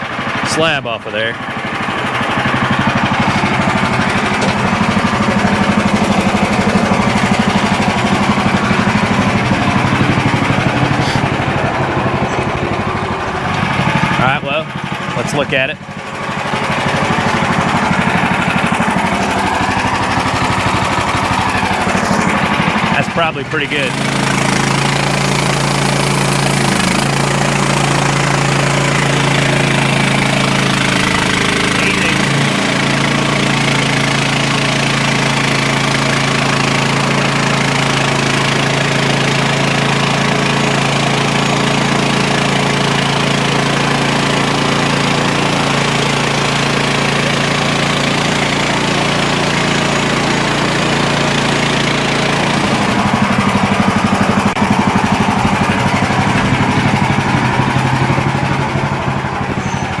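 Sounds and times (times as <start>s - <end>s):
sawmill engine running: 0.0s - 60.0s.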